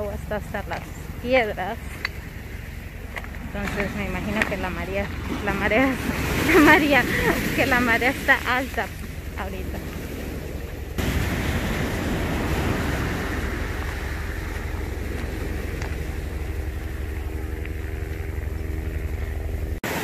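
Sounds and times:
wind on microphone: 0.0 - 19.8
steady engine hum: 0.0 - 20.0
surf washing over cobbles: 2.5 - 18.4.

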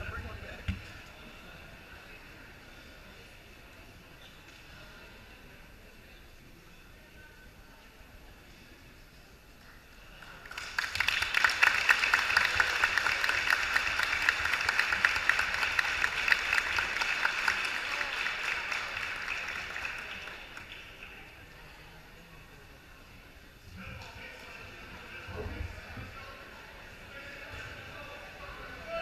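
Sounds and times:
crowd applauding: 10.0 - 21.5.

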